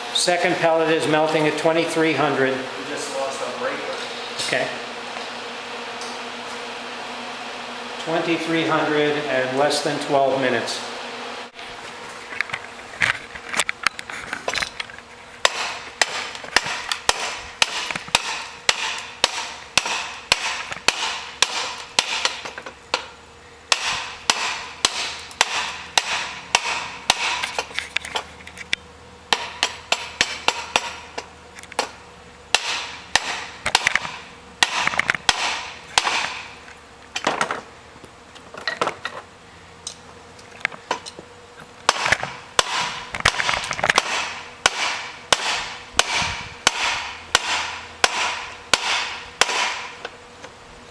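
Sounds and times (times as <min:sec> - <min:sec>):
hammer striking steel on anvil: 0:15.4 - 0:27.7, 0:29.3 - 0:36.6, 0:41.9 - 0:50.1.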